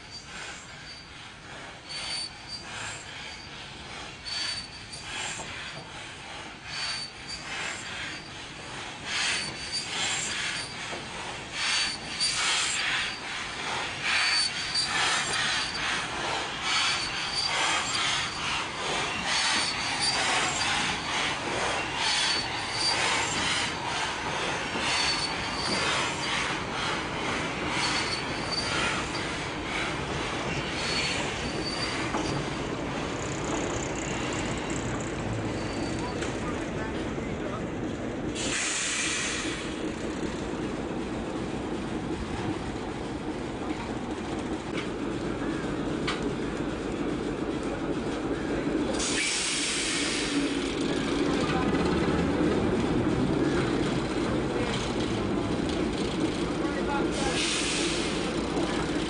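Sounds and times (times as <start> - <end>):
steam locomotives squealing: 0.0 - 37.7, 38.4 - 40.6, 41.2 - 59.0
short high squeak: 1.8 - 3.6, 4.2 - 5.7, 6.7 - 8.4, 9.2 - 10.9, 14.2 - 16.0, 21.8 - 23.5, 24.8 - 26.6, 27.7 - 29.4, 30.5 - 32.6, 33.9 - 36.3.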